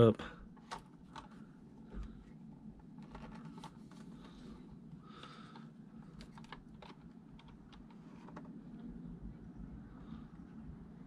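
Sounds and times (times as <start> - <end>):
steady low hum: 0.0 - 11.0
fingers clicking and tapping plastic: 5.5 - 8.6.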